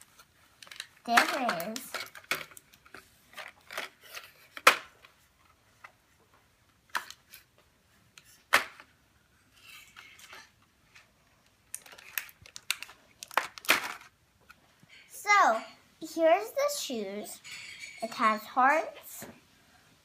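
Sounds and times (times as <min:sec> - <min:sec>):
soft plastic rustle: 0:09.3 - 0:15.2
plastic packaging clicks and taps: 0:11.7 - 0:14.1.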